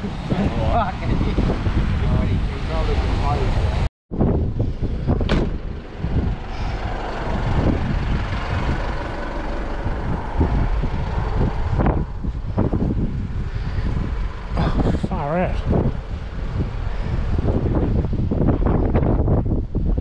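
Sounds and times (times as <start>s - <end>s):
car engine low rumble: 0.0s - 20.0s
wind buffeting microphone: 0.0s - 20.0s.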